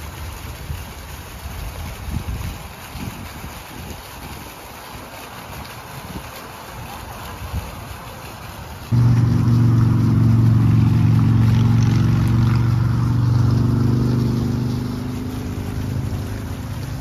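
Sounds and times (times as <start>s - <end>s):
engine running: 8.8s - 17.0s.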